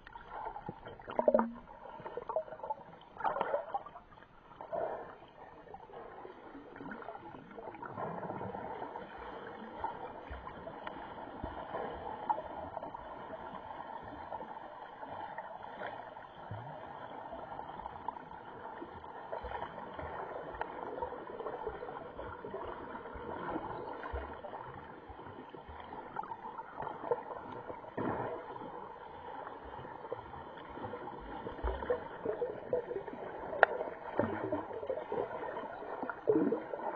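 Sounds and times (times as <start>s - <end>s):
small underwater clicks: 33.4s - 34.7s.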